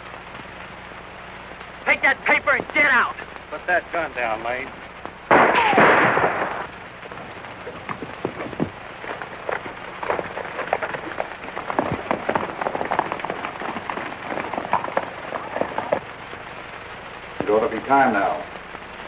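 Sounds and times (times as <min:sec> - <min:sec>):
horses galloping on dirt: 0:01.4 - 0:18.9
gunshot blast: 0:05.3 - 0:06.7.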